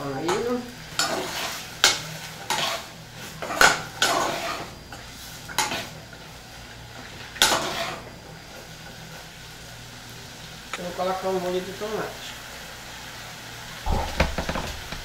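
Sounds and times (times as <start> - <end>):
filling sizzling faintly: 0.0 - 15.0.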